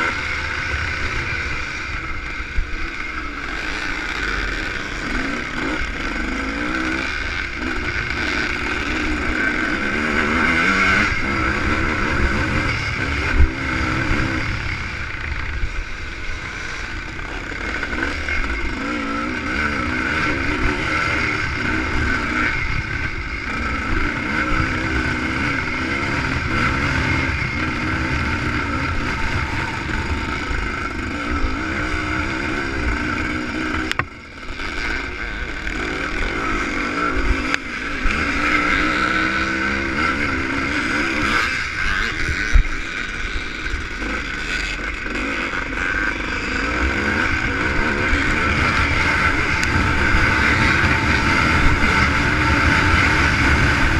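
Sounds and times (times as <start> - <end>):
motorcycle engine revving: 0.0 - 53.9.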